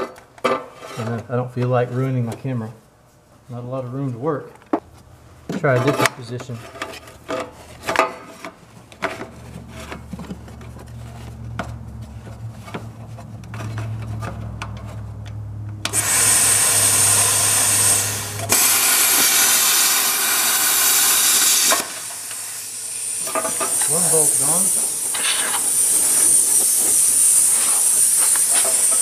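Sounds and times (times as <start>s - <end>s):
plasma cutter hissing: 15.9s - 29.0s.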